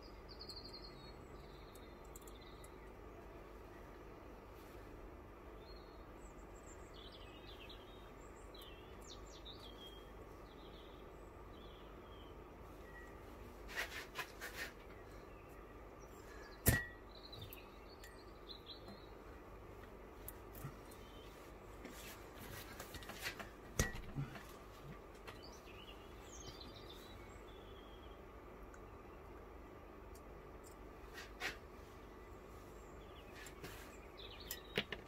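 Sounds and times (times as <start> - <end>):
faint bird chirps: 0.0 - 4.9, 5.5 - 19.4, 25.3 - 29.3, 31.1 - 34.9
steady low hum: 0.0 - 34.8
small metallic clicks: 1.6 - 3.0
sharp metal clink: 16.6 - 17.0.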